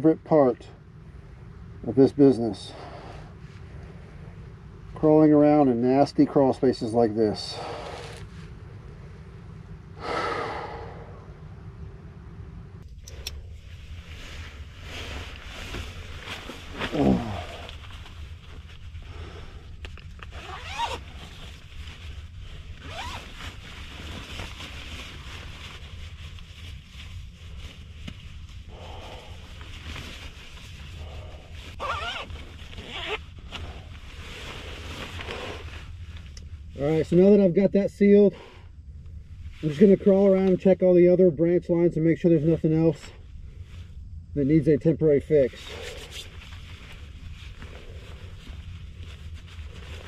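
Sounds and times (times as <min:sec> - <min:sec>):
steady low rumble: 0:00.0 - 0:50.0
coverall rustling: 0:13.6 - 0:36.8, 0:46.3 - 0:50.0
plastic sheeting crinkling: 0:13.8 - 0:19.4, 0:20.1 - 0:36.4.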